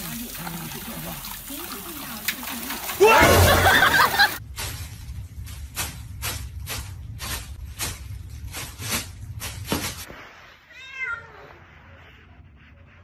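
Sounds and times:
cat meowing: 10.7 - 11.7.

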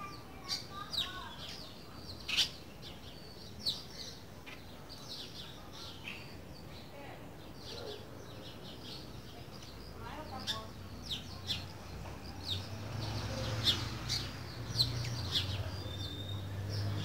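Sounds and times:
bird whistling song: 13.7 - 17.0.

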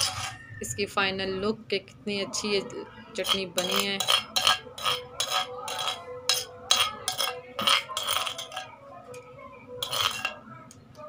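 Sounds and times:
spoon scraping earthenware bowl: 0.0 - 0.8, 2.3 - 9.2, 9.8 - 10.4.

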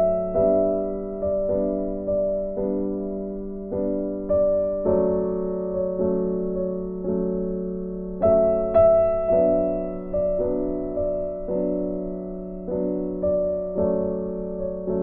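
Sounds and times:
gentle piano chords: 0.0 - 15.0.

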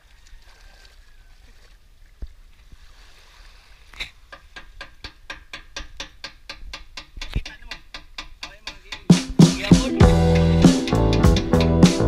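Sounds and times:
water lapping: 0.0 - 4.8
music with steady drum beat: 6.9 - 12.0.

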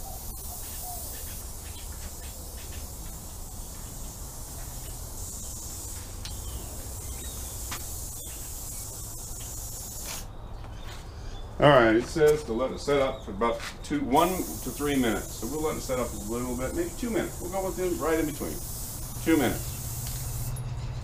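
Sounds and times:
aerosol spray can hissing: 0.0 - 10.3, 14.2 - 20.6.

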